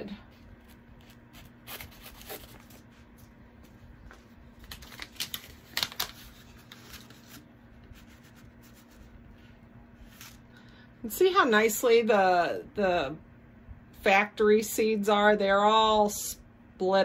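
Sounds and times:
paper packet rustling: 0.4 - 3.3, 4.1 - 10.4.

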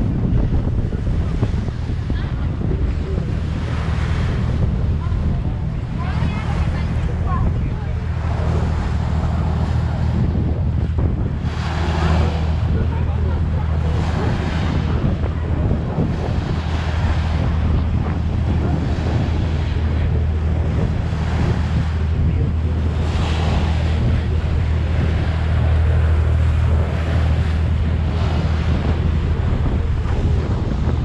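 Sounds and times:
ferry engine drone: 0.0 - 31.0
water rushing along hull: 0.0 - 31.0
wind buffeting microphone: 0.0 - 31.0.

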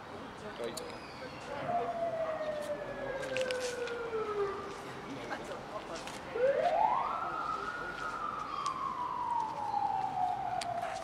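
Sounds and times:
siren wailing: 1.6 - 4.7, 6.4 - 11.0.

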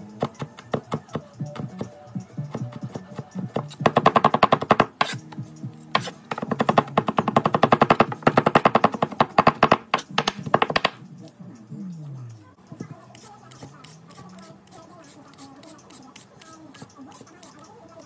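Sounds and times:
knife chopping on plastic board: 0.2 - 11.0.

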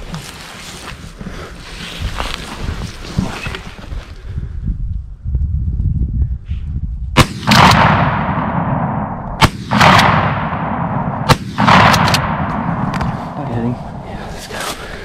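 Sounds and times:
shotgun blasts with rolling echo: 7.2 - 14.4.

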